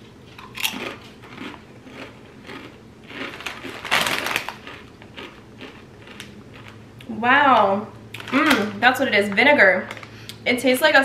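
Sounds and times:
person chewing crisp chips: 0.3 - 7.1.

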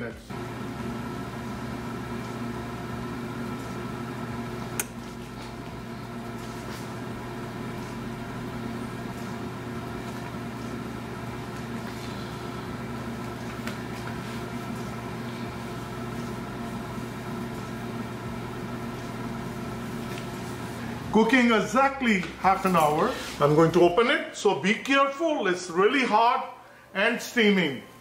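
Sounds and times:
oven humming: 0.3 - 28.0
sharp click: 4.8 - 5.0.

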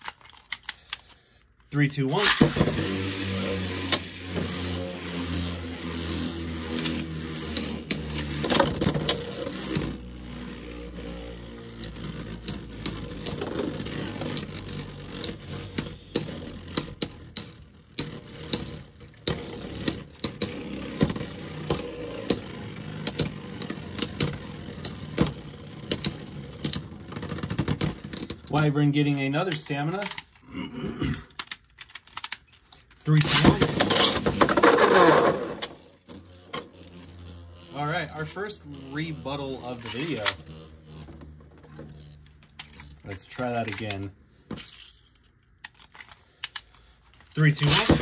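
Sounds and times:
spinning tops whirring: 1.8 - 30.4, 31.4 - 48.0
tops clicking and knocking: 2.2 - 30.4.

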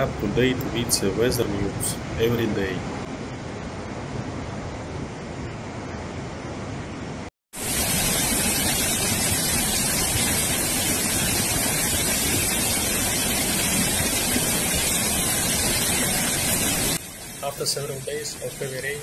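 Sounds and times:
floodwater rushing: 7.6 - 19.0.

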